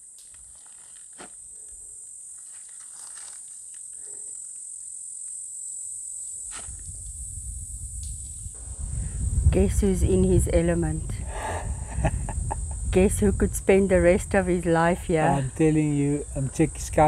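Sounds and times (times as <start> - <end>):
insects buzzing shrilly: 0.0 - 17.0
low rumble on microphone: 6.8 - 16.4.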